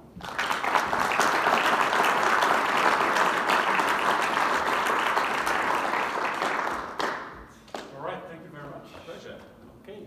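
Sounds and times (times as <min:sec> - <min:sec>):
audience applauding: 0:00.2 - 0:07.5.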